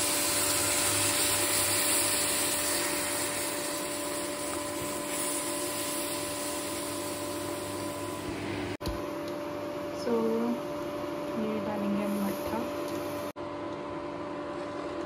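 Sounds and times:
liquid hissing in hot pan: 0.0s - 8.0s
cooling fan whirring: 0.0s - 15.0s
electrical hum: 0.0s - 15.0s.

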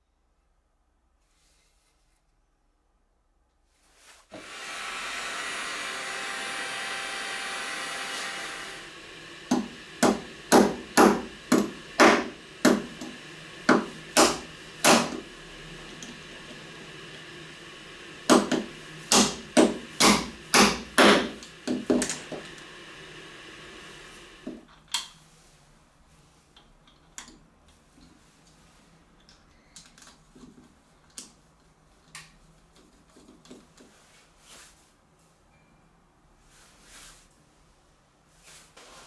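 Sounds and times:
hammer tapping on metal pliers: 9.5s - 15.2s.

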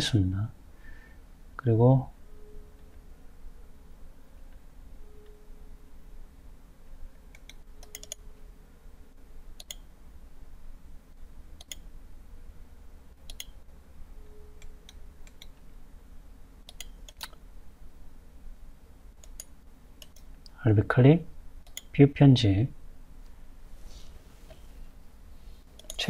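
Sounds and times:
low steady hum: 0.0s - 26.0s
computer mouse clicks: 7.3s - 8.2s, 9.6s - 9.9s, 11.6s - 11.9s, 13.2s - 13.6s, 14.6s - 15.6s, 16.7s - 17.4s, 19.2s - 20.6s, 21.6s - 21.9s, 25.7s - 26.0s.

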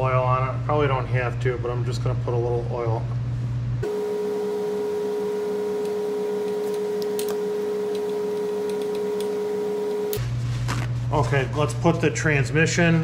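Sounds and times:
steady humming tone: 3.8s - 10.4s.

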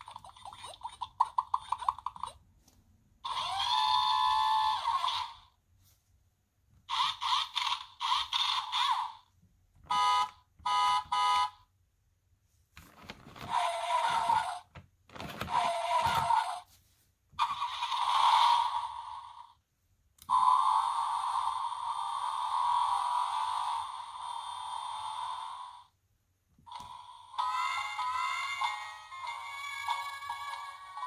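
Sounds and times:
electronic toy car sound effects: 3.2s - 5.6s, 6.8s - 9.3s, 9.9s - 11.6s, 13.4s - 14.7s, 15.5s - 16.7s, 17.4s - 19.6s, 20.2s - 26.0s, 26.7s - 31.0s
toy horn honks: 9.9s - 11.6s.

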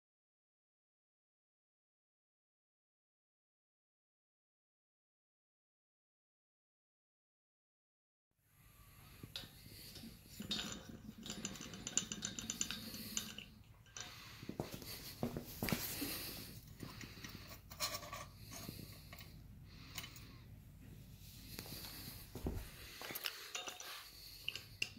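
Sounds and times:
metal clinks and scrapes: 9.0s - 20.3s, 21.7s - 24.9s.

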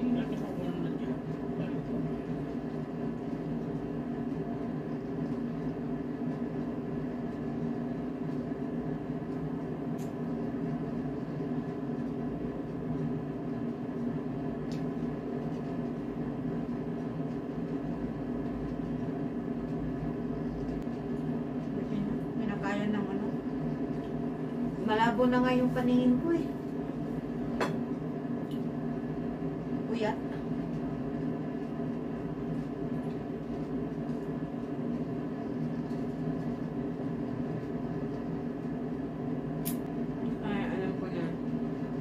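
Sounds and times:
appliance humming: 0.0s - 42.0s.

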